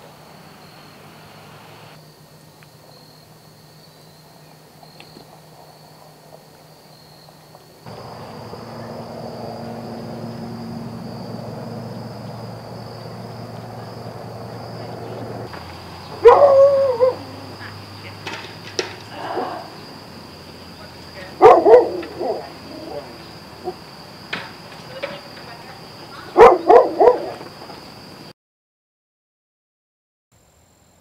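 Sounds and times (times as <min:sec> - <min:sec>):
loud wavering animal calls: 0:07.9 - 0:18.2, 0:19.0 - 0:23.9
steady low hum: 0:07.9 - 0:26.3.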